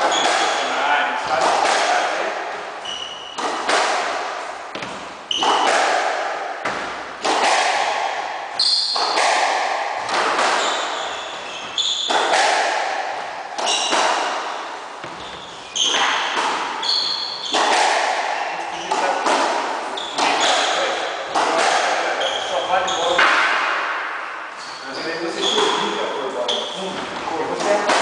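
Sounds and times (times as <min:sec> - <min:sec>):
shoes squeaking on wooden floor: 0:00.0 - 0:00.8, 0:10.1 - 0:12.4, 0:13.6 - 0:14.2, 0:15.0 - 0:17.7, 0:19.9 - 0:21.0, 0:22.0 - 0:23.3
squash ball hitting rackets and walls: 0:00.0 - 0:28.0.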